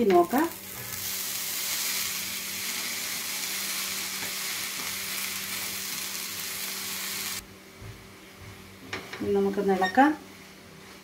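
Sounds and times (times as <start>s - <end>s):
food sizzling in a frying pan: 0.0s - 7.4s.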